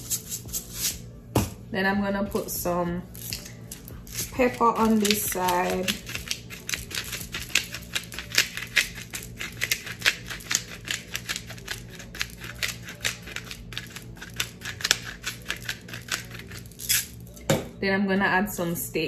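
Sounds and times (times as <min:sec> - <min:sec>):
pepper grinder crunching: 0:03.1 - 0:17.4.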